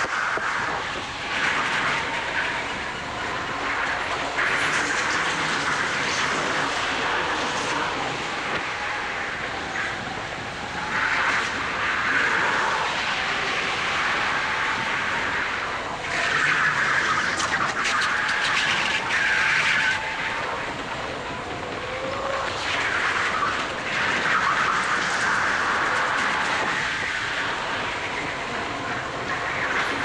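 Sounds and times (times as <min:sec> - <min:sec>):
loud rushing noise: 0:00.0 - 0:30.0.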